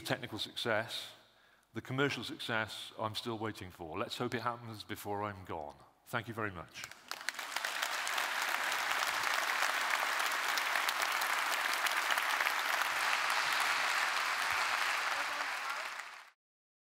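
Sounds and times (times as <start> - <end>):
audience applauding: 6.9 - 16.4.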